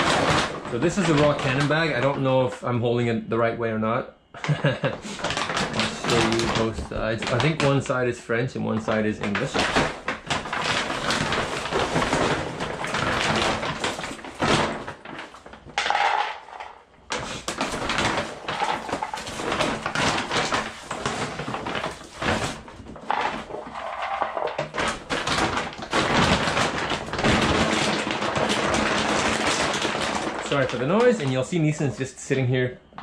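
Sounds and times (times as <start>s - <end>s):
plastic bag crinkling: 0.0s - 2.6s, 4.5s - 33.0s
dry kibble rattling: 5.0s - 8.0s, 8.7s - 31.9s.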